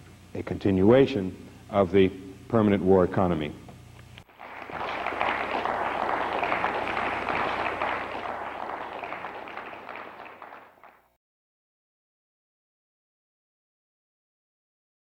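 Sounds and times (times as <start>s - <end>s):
audience applauding: 4.3s - 11.1s.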